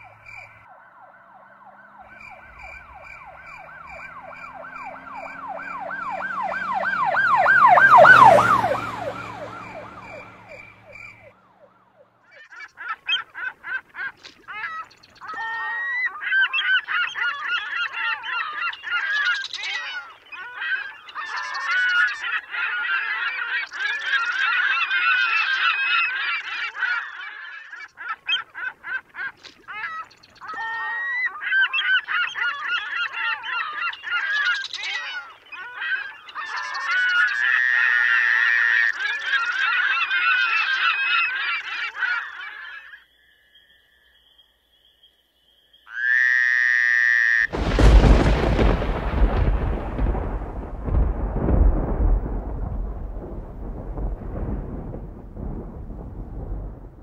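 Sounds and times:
wavering siren-like wail: 0.0 - 12.2
geese honking: 12.3 - 43.0.

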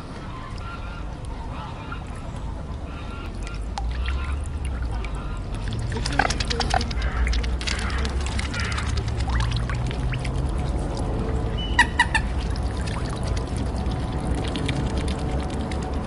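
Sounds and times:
water pouring and splashing: 3.3 - 16.0
duck quacking: 11.7 - 12.4.

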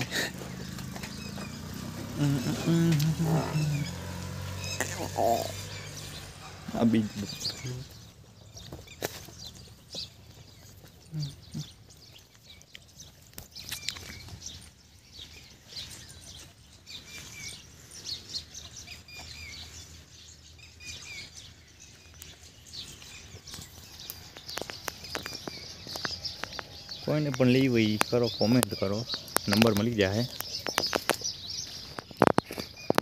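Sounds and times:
small birds chirping: 0.0 - 33.0.

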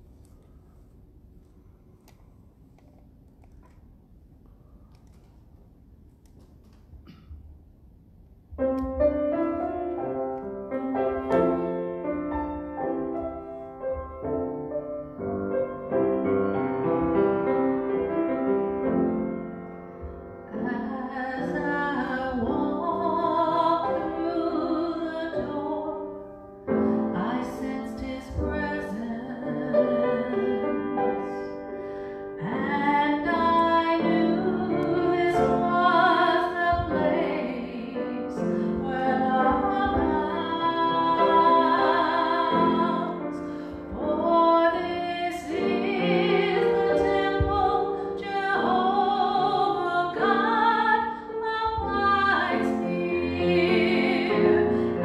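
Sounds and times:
grand piano: 0.0 - 55.0
woman singing with vibrato: 20.5 - 26.2, 27.1 - 31.6, 32.4 - 55.0.

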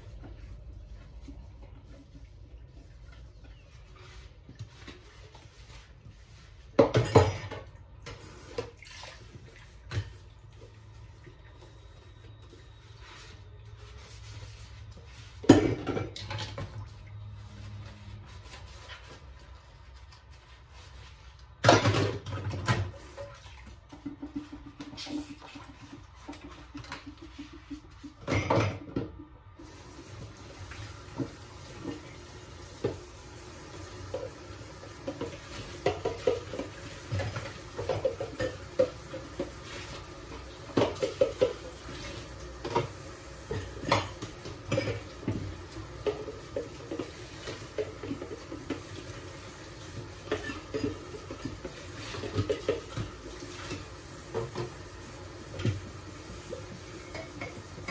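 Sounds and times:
dishes and cutlery clattering: 6.7 - 8.7, 15.4 - 16.8, 21.6 - 29.3, 35.0 - 49.0, 50.2 - 54.8, 56.6 - 57.9.

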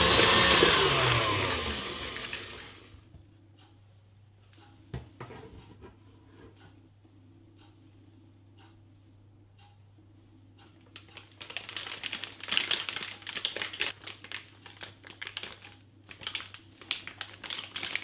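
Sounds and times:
plastic piping bag crinkling: 10.9 - 18.0.

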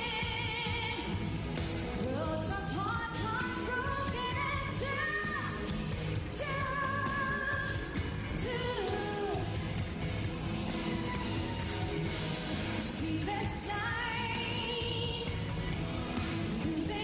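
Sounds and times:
woman singing: 0.0 - 1.2, 2.0 - 9.7, 12.8 - 15.7, 16.4 - 17.0
live pop-rock band: 0.0 - 17.0.

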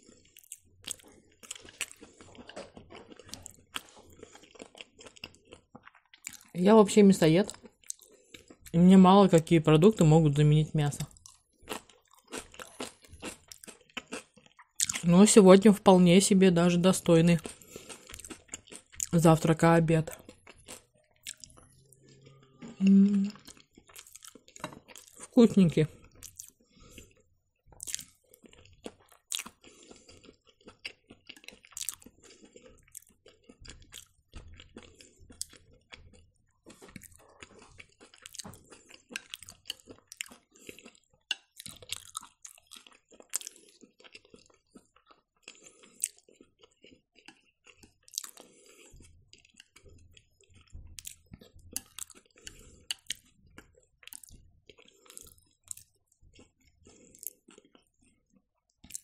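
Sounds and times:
crunches while chewing: 0.0 - 6.6
person chewing close to microphone: 0.0 - 6.6, 7.4 - 10.2, 11.0 - 15.2, 17.0 - 59.0.

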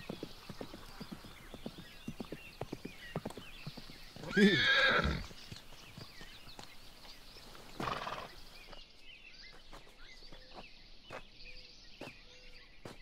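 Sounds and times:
horse sound: 0.0 - 8.7
small birds chirping: 0.0 - 13.0.

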